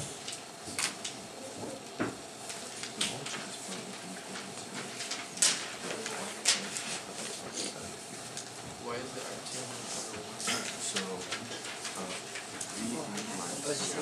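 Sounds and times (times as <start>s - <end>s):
paper rustling: 2.4s - 7.5s, 9.2s - 14.0s.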